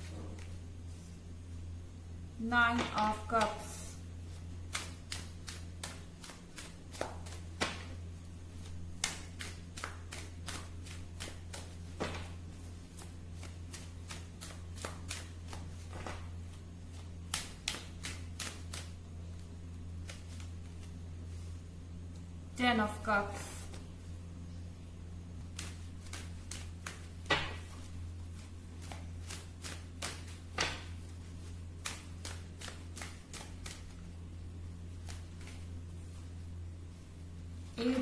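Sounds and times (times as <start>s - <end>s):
low electrical hum: 0.0s - 38.0s
cards being shuffled: 4.3s - 21.5s, 25.4s - 34.1s, 34.9s - 36.3s.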